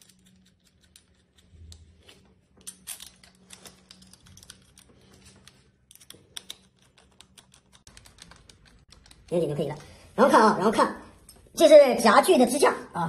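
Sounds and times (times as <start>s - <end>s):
small metal parts clicking: 0.0s - 1.9s, 2.6s - 9.3s.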